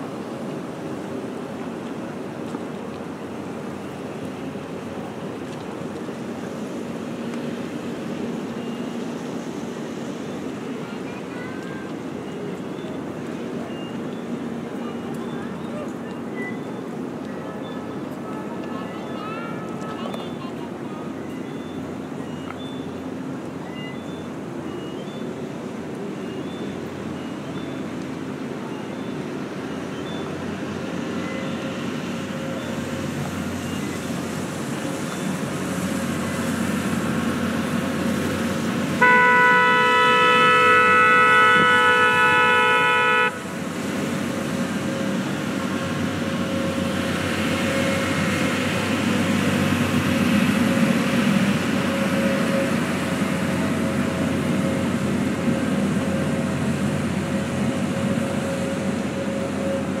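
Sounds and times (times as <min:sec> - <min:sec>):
boat horn blast: 0:39.0 - 0:43.6.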